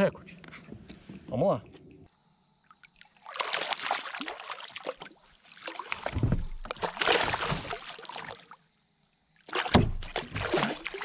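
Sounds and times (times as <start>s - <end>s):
water splashing beside kayak: 2.6s - 8.7s, 9.3s - 11.0s.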